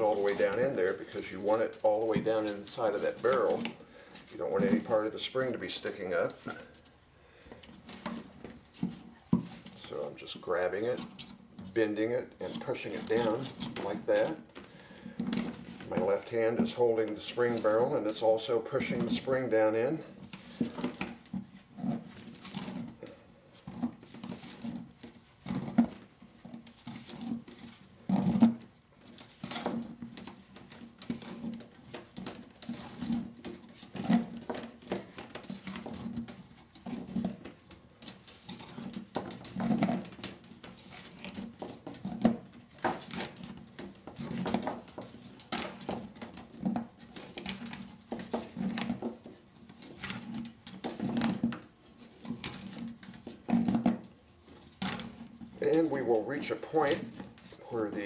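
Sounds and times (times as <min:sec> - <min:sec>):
spring steel scraping and knocking: 0:00.0 - 0:58.0.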